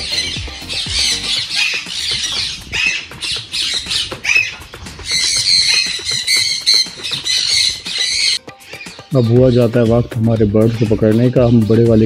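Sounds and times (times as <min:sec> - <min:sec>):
parrots squawking and screeching: 0:00.0 - 0:09.7.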